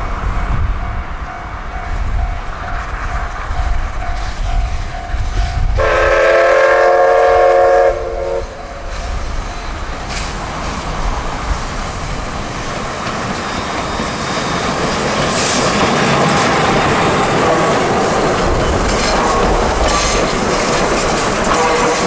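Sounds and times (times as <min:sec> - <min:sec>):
steam locomotive passing: 0:00.0 - 0:22.0
coaches clattering over rail joints: 0:08.8 - 0:22.0.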